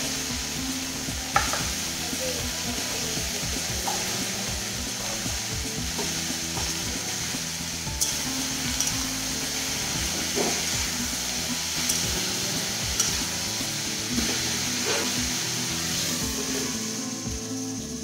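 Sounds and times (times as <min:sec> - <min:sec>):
food sizzling in hot oil: 0:00.0 - 0:18.0
spatula clanking on pan: 0:01.3 - 0:01.8, 0:03.7 - 0:04.3, 0:07.9 - 0:15.4
metal spatula scraping a pan: 0:08.0 - 0:16.9.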